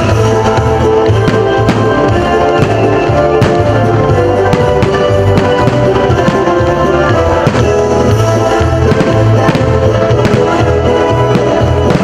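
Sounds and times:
background music with held chords: 0.0 - 12.0
pulsing bass beat: 0.0 - 12.0.

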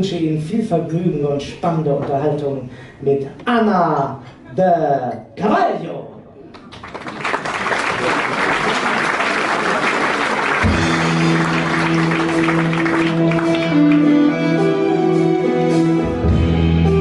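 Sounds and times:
audience applauding: 6.5 - 14.3
music with long held notes: 10.6 - 17.0.

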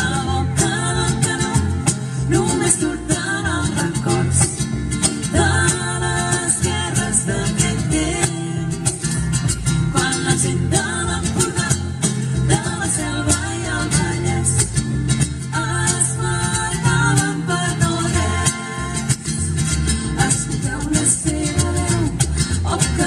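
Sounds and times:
strummed guitar: 0.0 - 23.0
voices singing: 0.0 - 23.0.

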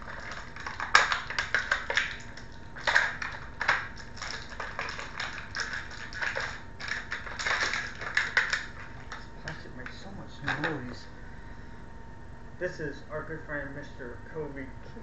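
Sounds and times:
plastic packaging crackling: 0.0 - 10.9.

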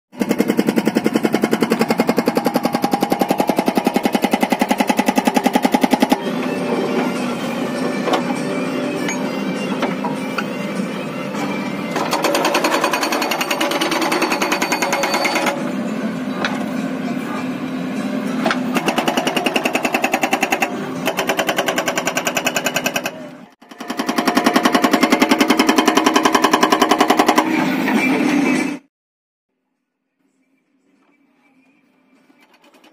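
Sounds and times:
hydraulic breaker hammering rock: 0.1 - 10.5, 11.9 - 15.7, 18.4 - 27.6.

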